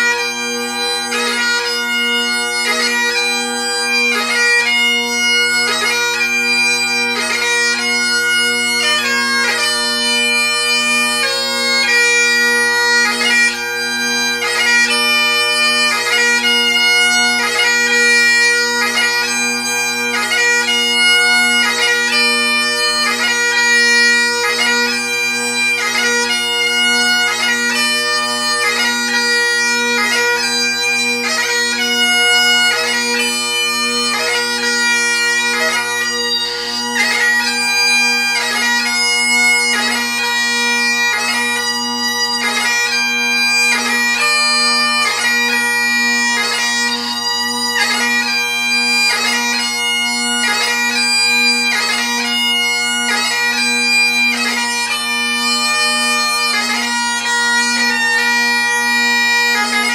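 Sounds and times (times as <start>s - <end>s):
bagpipe chanter melody: 0.0s - 59.9s
bagpipe drones: 0.0s - 59.9s.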